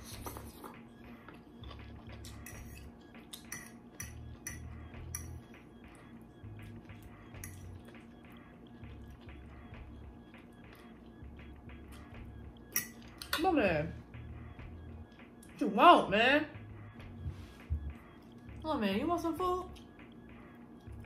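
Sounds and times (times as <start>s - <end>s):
fork scraping a plate: 2.3s - 4.7s.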